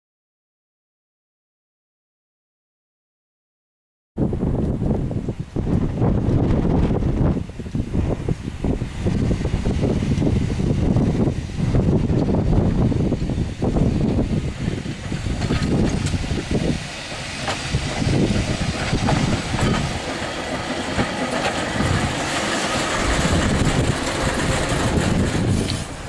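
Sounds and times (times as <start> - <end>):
tram wheels rumbling on rails: 4.2 - 26.0
clicks from rail joints: 15.4 - 16.2, 17.4 - 18.0, 18.6 - 26.0.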